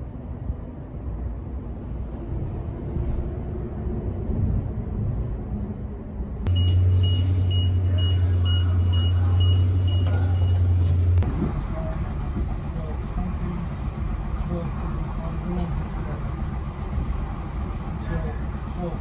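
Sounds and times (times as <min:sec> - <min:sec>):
rumbling outdoor background: 0:00.0 - 0:19.0
train low hum: 0:00.0 - 0:19.0
high beeps: 0:06.5 - 0:10.7.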